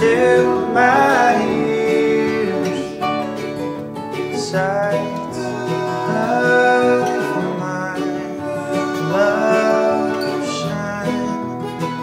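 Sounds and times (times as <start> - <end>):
man singing: 0.0 - 3.4, 4.3 - 12.0
finger-picked acoustic guitar: 0.0 - 12.0
upright bass: 0.0 - 12.0.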